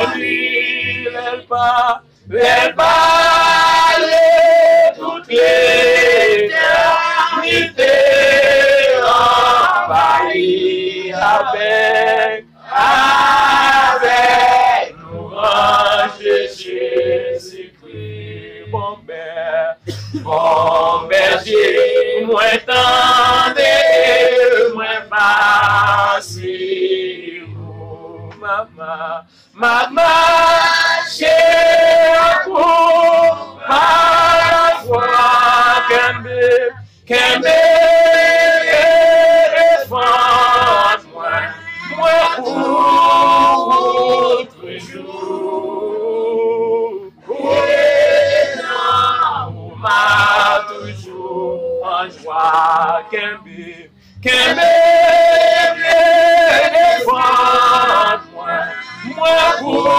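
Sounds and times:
voices singing a hymn: 0.0 - 59.9.

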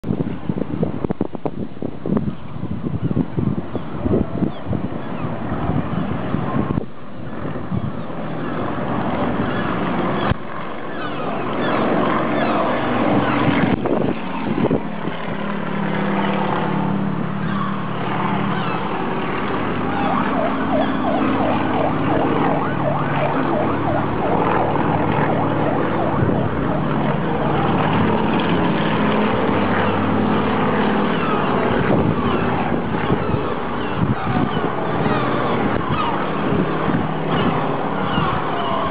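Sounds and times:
propeller plane droning: 0.0 - 38.9
birds calling: 3.0 - 5.4, 9.4 - 13.7, 17.4 - 19.3, 31.0 - 36.6, 37.3 - 38.9
distant city noise: 3.1 - 38.9.

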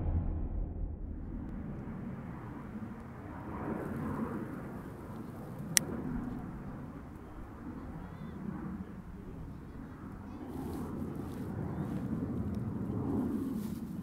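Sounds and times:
distant jet engine rumble: 0.0 - 14.0.

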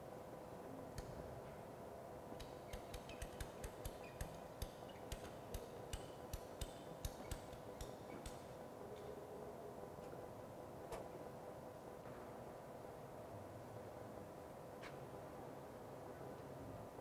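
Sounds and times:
ratchet pipe cutter clicking: 2.4 - 8.5.

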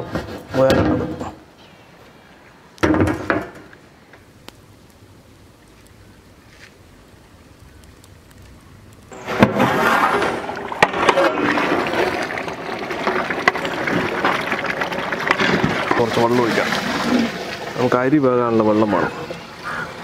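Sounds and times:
gravy boiling and sloshing: 4.4 - 20.0.

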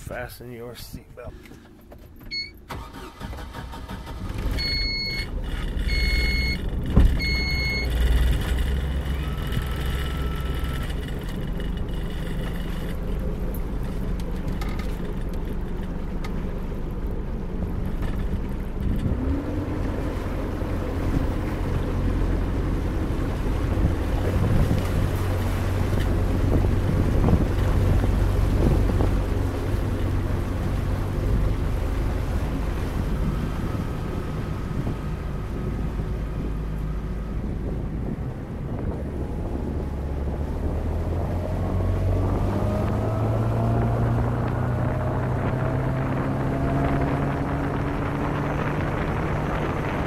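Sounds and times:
motorboat engine running: 0.0 - 50.0
wind and water noise: 0.0 - 50.0
short electronic beeps: 2.3 - 2.6, 4.6 - 5.3, 5.9 - 6.6, 7.2 - 8.0, 9.2 - 10.9.

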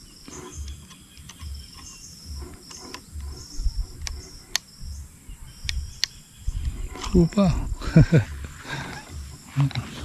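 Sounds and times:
insects trilling: 0.0 - 10.0
plastic lantern clicks: 0.5 - 2.0, 5.6 - 6.2.

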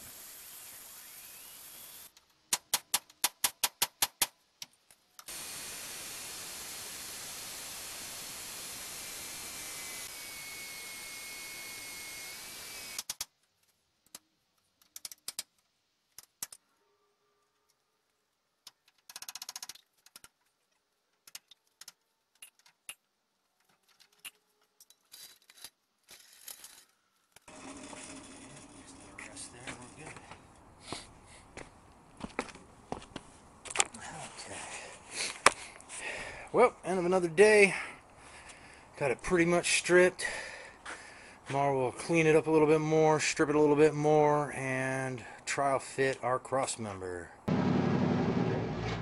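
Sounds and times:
loud sharp clicks: 2.5 - 5.3, 13.0 - 13.4
metal-cutting tool hissing: 5.3 - 13.0.

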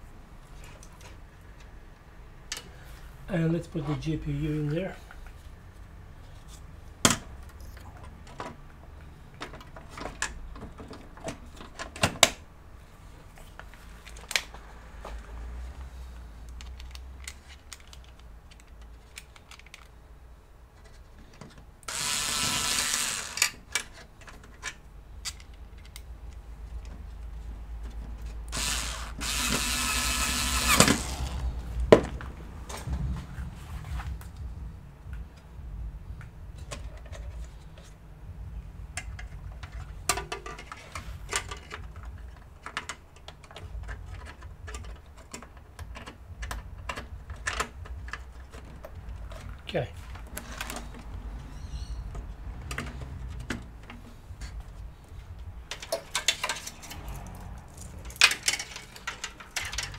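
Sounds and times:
rasping tool noise: 21.9 - 23.6, 28.5 - 31.4
screws and brackets clicking: 21.9 - 23.8, 28.5 - 31.3.

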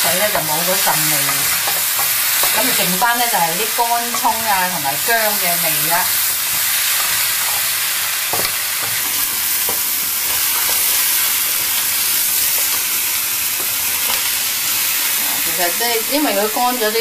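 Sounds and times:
meat sizzling in a pan: 0.0 - 17.0
spatula scraping a pan: 6.2 - 13.0.

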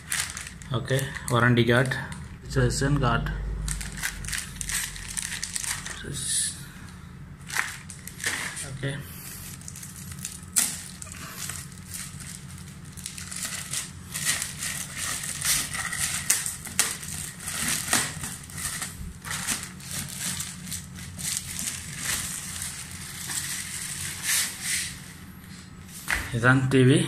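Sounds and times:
plastic bag crinkling: 0.0 - 2.3, 3.5 - 6.6, 7.4 - 25.1.

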